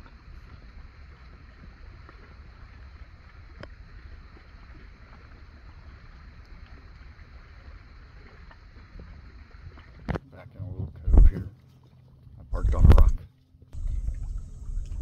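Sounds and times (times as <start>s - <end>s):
low wind rumble on microphone: 0.0s - 11.5s, 12.3s - 13.2s, 13.8s - 15.0s
small waves lapping against hull: 0.0s - 15.0s.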